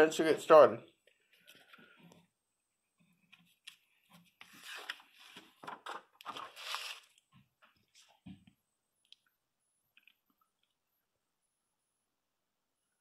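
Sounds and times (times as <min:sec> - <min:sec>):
paper pages rustling: 0:03.4 - 0:07.3.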